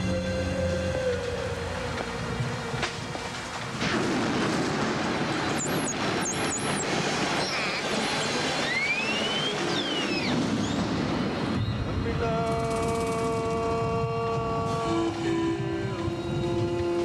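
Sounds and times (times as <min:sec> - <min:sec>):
dolphin whistling: 0:05.6 - 0:10.8.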